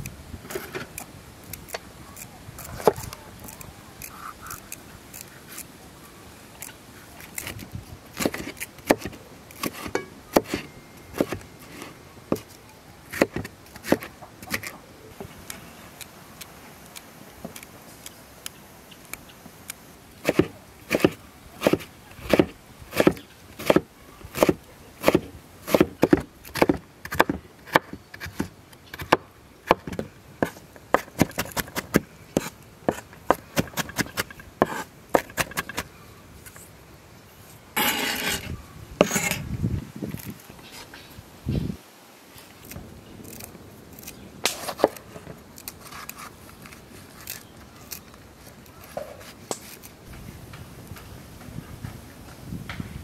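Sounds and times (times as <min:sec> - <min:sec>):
knife chopping on wooden board: 0:20.3 - 0:23.8.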